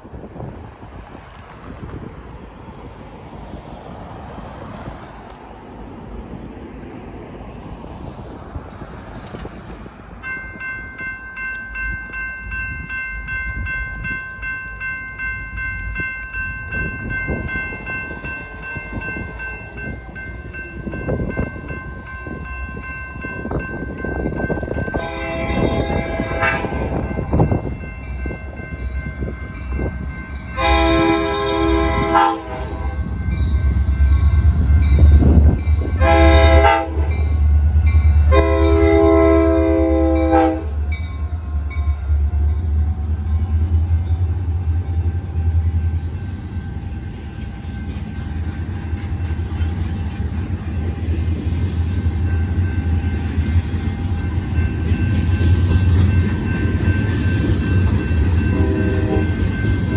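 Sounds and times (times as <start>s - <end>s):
crossing bell ringing: 10.0s - 59.9s
locomotive engine rumble: 13.6s - 59.9s
locomotive horn blasts: 24.9s - 27.1s, 30.5s - 33.1s, 36.0s - 37.4s, 38.3s - 41.2s, 58.5s - 59.5s.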